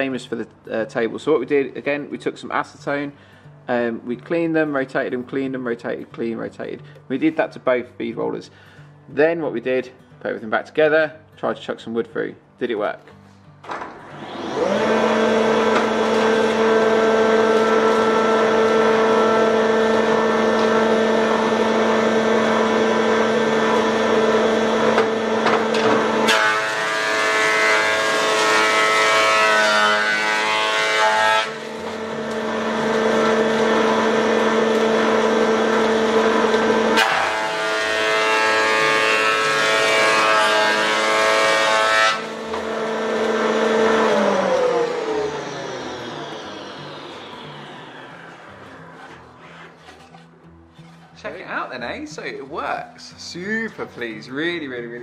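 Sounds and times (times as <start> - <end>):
boards passing through cutter: 13.6 - 50.9
planer motor whine: 14.0 - 50.0.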